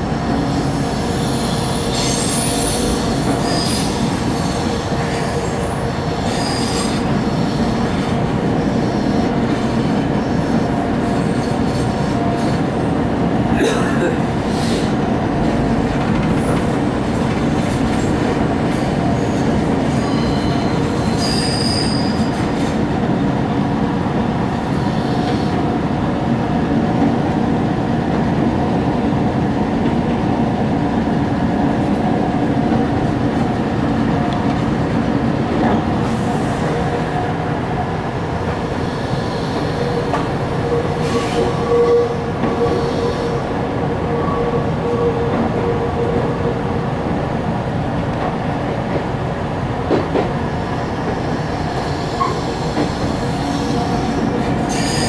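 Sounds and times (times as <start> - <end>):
train wheels rumbling on rail: 0.0 - 55.0
high-pitched wheel squeals: 19.9 - 22.3.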